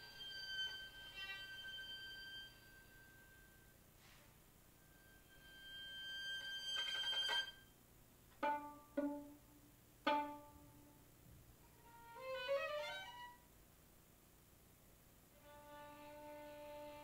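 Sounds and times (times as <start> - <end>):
plucked violin notes: 8.3 - 11.0, 11.8 - 13.4.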